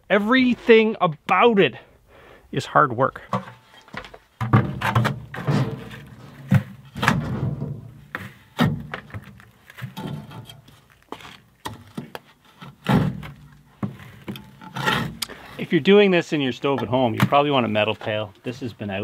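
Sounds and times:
thunks against metal: 4.4 - 9.1.

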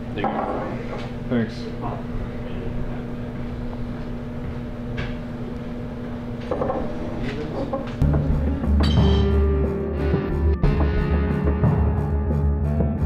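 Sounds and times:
music with heavy bass: 8.0 - 13.0.

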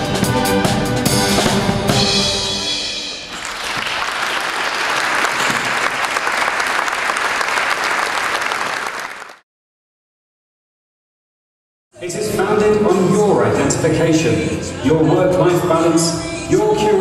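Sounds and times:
music with drums: 0.0 - 3.3
audience applauding: 3.3 - 9.4.

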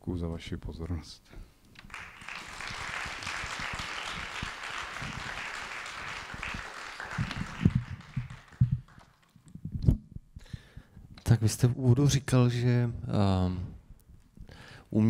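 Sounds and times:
audience applauding: 1.8 - 9.4.

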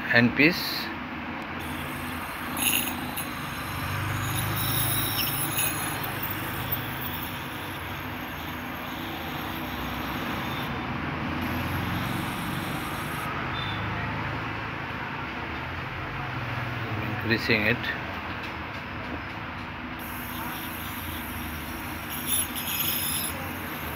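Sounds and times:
ultrasonic scaler hissing: 1.6 - 13.3, 20.0 - 23.9.

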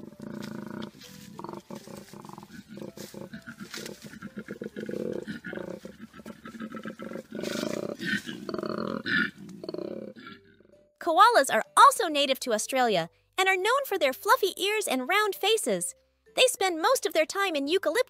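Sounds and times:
koala bellowing grunts: 0.0 - 10.7.

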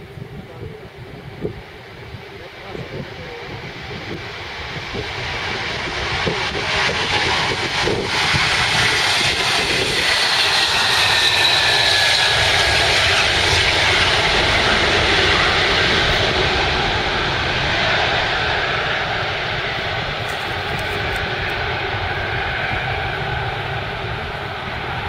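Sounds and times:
jet engines roaring at takeoff: 0.0 - 25.0.

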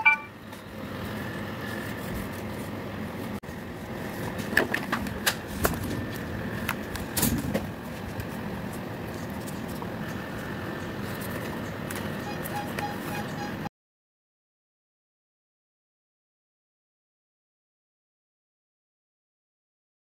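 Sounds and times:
steady background noise: 0.0 - 13.7.

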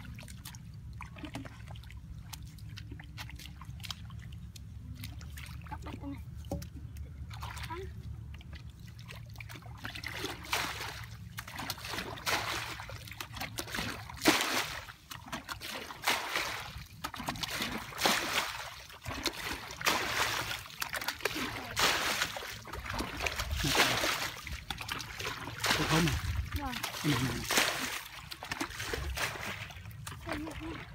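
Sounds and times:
bucket scooping water: 0.0 - 30.9.

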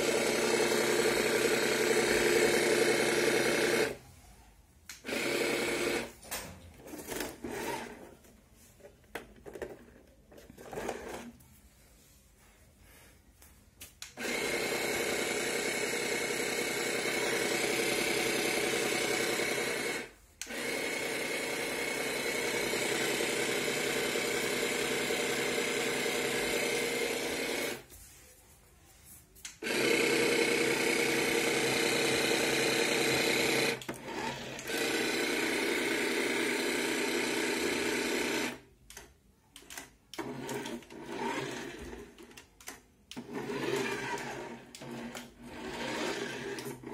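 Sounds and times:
small electric water pump whirring: 0.0 - 4.0, 4.9 - 6.1, 14.0 - 27.9, 29.5 - 38.7, 39.7 - 46.9.

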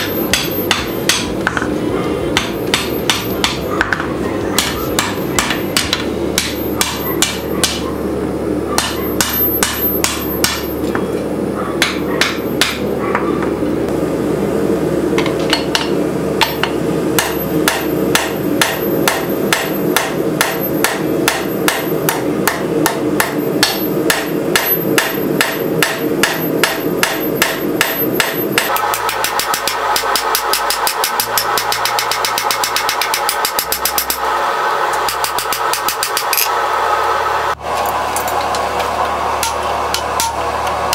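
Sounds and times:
hammer striking hot metal: 0.0 - 7.9, 8.7 - 11.0, 11.8 - 12.9, 15.2 - 36.6, 38.2 - 40.9
steady hum: 0.0 - 40.9.

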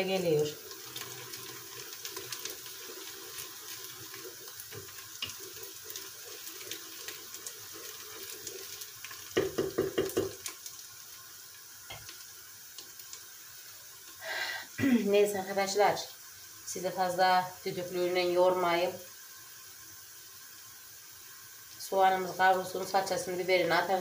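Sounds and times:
rhythmic scraping in pan: 0.0 - 14.3
onions sizzling in hot oil: 0.0 - 24.0.

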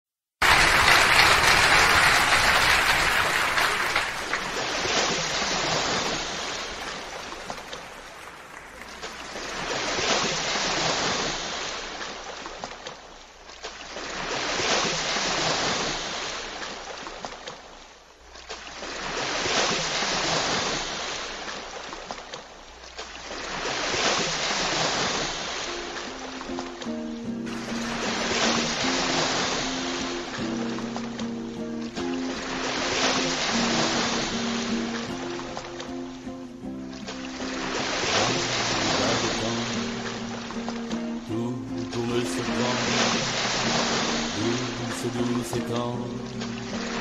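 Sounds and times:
waves rushing in and drawing back: 0.4 - 12.5, 13.8 - 17.2, 18.6 - 22.0, 23.1 - 47.0.

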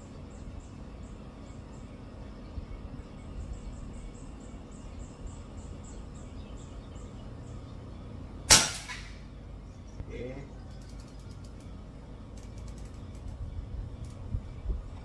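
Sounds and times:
air rifle shot: 8.5 - 9.2.

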